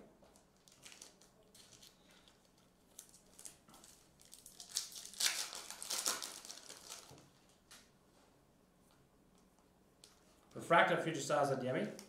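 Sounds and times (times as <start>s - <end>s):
foil wrapper crinkling: 0.3s - 7.5s.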